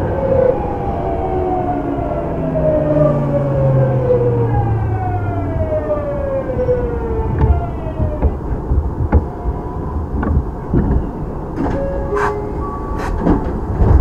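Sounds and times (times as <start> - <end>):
train running gear rumble: 4.0 - 14.0.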